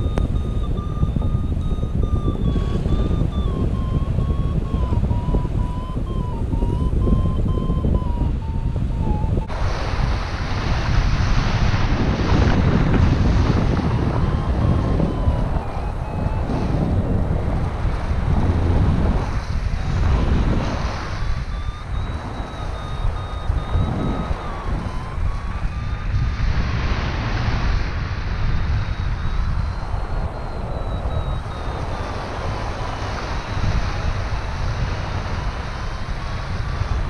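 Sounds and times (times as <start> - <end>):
variometer beeping tone: 0.0 - 37.0
wind on microphone: 0.0 - 37.0.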